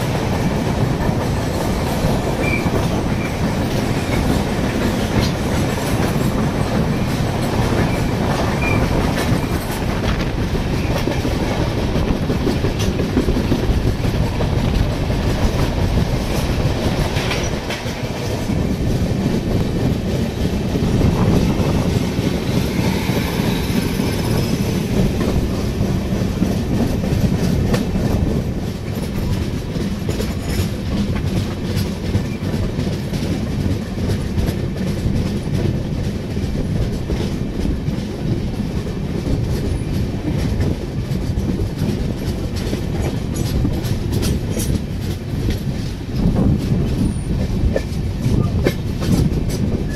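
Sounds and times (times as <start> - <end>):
train rumbling on track: 0.0 - 49.9
wheels clattering over rail joints: 0.0 - 49.9.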